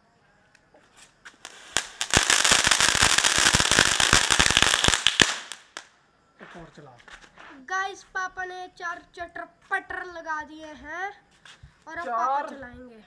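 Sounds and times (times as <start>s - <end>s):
firecracker hiss: 0.8s - 6.7s
firecracker crackling: 1.0s - 5.9s.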